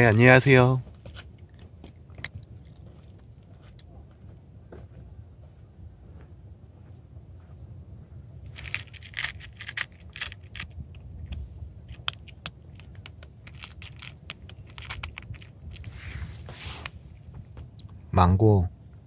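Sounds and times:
cat crunching dry kibble: 0:00.0 - 0:03.9, 0:08.4 - 0:18.0.

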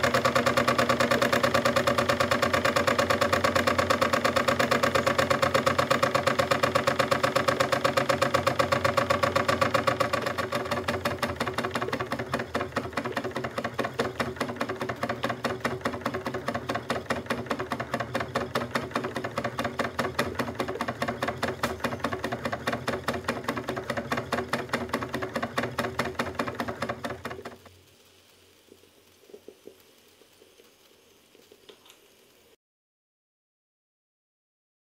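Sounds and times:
steam engine chuffing clatter: 0:00.0 - 0:27.7
faint clicks: 0:27.6 - 0:32.5.

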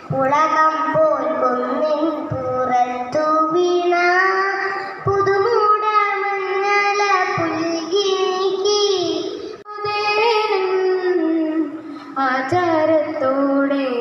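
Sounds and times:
girl breathing between phrases: 0:11.7 - 0:12.2.

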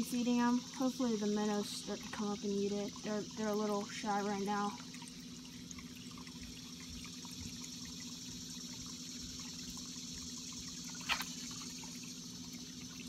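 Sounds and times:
low steady hum: 0:00.0 - 0:13.0
water trickling into pond: 0:00.0 - 0:13.0
brief splash: 0:10.9 - 0:11.8.

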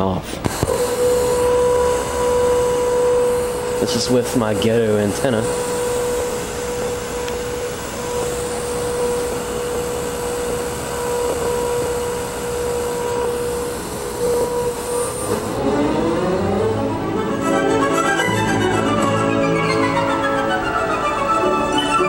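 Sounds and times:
radio static hiss: 0:00.0 - 0:15.6
radio tuning pitch slide: 0:00.4 - 0:22.0
steady whistle tone: 0:00.7 - 0:22.0.

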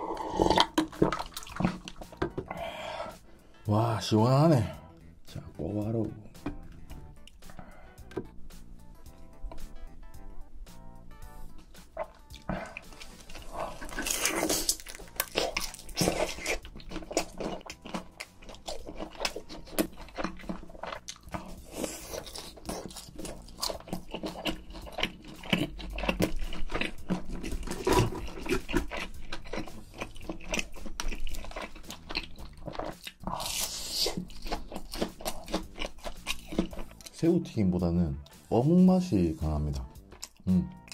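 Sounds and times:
crunchy chewing of fried food: 0:00.0 - 0:03.2, 0:11.2 - 0:37.2, 0:39.8 - 0:40.9.

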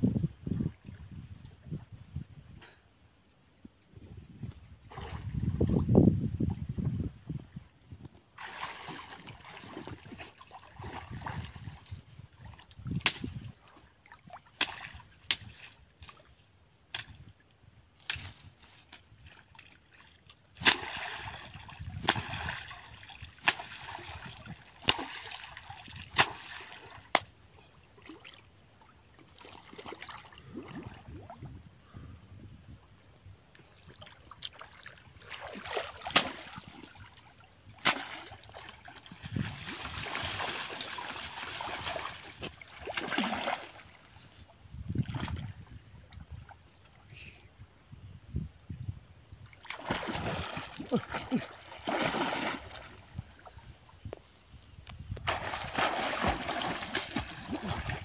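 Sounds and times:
river water splashing and sloshing: 0:04.8 - 0:05.8, 0:08.2 - 0:31.5, 0:33.5 - 0:47.1, 0:49.3 - 0:58.0
sharp slaps and knocks: 0:13.0 - 0:13.4, 0:14.6 - 0:16.2, 0:16.9 - 0:17.2, 0:20.6 - 0:20.9, 0:24.8 - 0:25.2.

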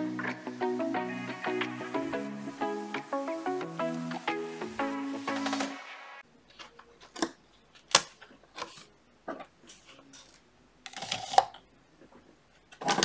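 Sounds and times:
background music: 0:00.0 - 0:06.2.

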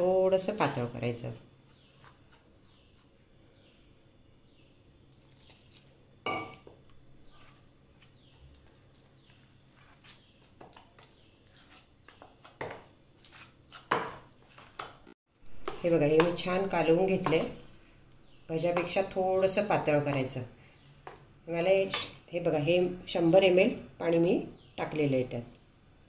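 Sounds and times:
spoon clinking against bowl: 0:06.2 - 0:06.7
metal spoon scraping batter in bowl: 0:15.6 - 0:17.5.

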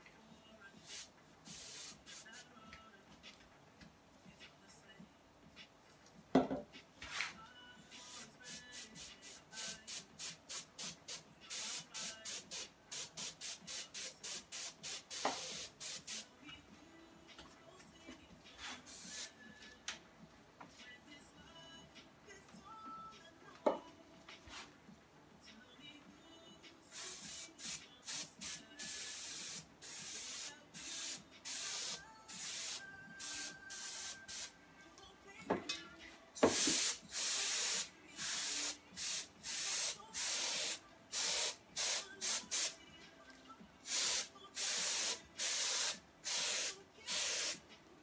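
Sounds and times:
compressed air hissing: 0:27.0 - 0:34.5, 0:36.5 - 0:42.7, 0:43.9 - 0:47.6.

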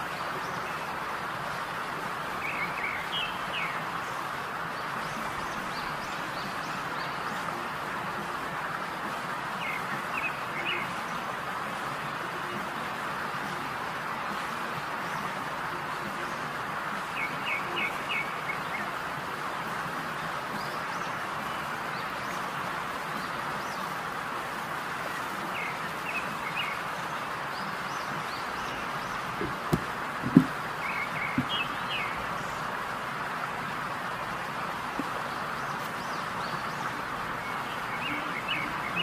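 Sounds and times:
steady hiss: 0:00.0 - 0:39.0
birds chirping: 0:02.2 - 0:11.5, 0:16.0 - 0:19.0, 0:25.0 - 0:39.0.

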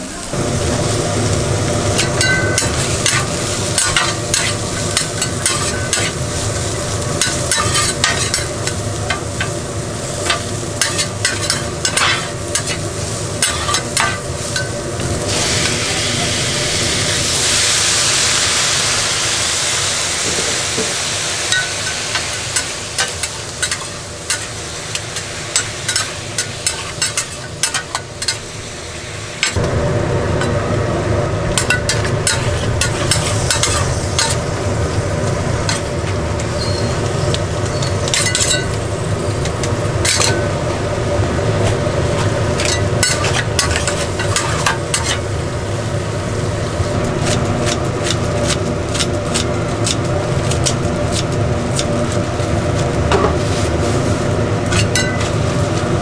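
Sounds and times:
food sizzling on a griddle: 0:00.0 - 0:56.0
spatulas clacking and scraping: 0:02.0 - 0:06.2, 0:07.2 - 0:09.6, 0:10.2 - 0:14.7, 0:21.5 - 0:28.4, 0:31.6 - 0:34.4, 0:37.6 - 0:38.8, 0:39.4 - 0:40.5, 0:41.6 - 0:45.2, 0:54.6 - 0:55.4.

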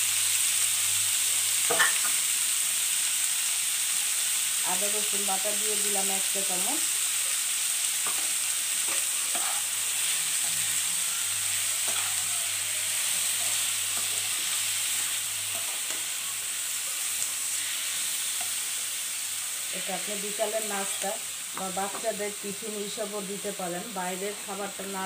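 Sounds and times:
meat and onions sizzling: 0:00.0 - 0:25.0
spatula scraping pan: 0:08.0 - 0:18.7.

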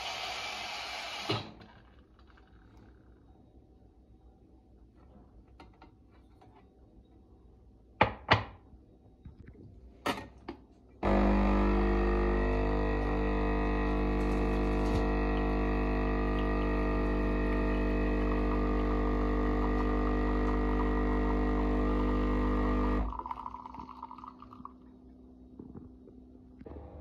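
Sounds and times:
espresso machine pump humming: 0:00.0 - 0:01.4, 0:11.0 - 0:24.7
coffee streaming into a mug: 0:11.1 - 0:24.8.

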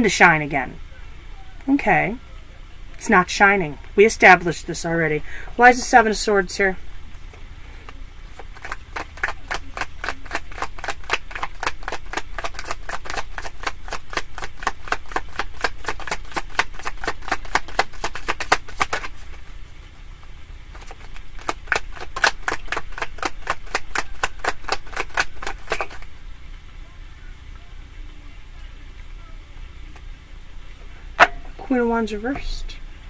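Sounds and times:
cards being shuffled: 0:08.3 - 0:19.5, 0:20.7 - 0:26.1.

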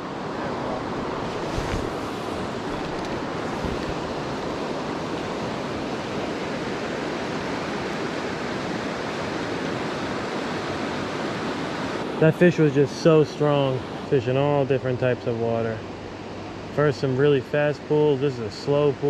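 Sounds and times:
river water rushing: 0:00.0 - 0:19.0.

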